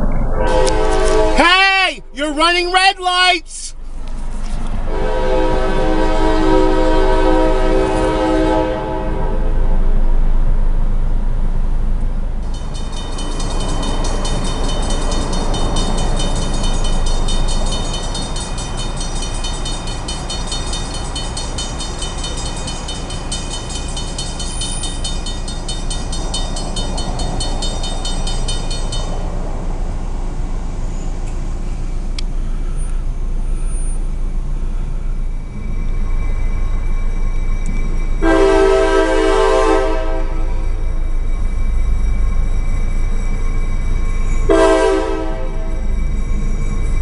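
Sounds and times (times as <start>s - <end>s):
low rumble: 0.0s - 1.4s
crossing warning bell ringing: 0.0s - 4.0s, 12.3s - 47.0s
locomotive air horn: 0.3s - 3.7s, 4.7s - 9.8s, 38.2s - 40.8s, 44.5s - 46.0s.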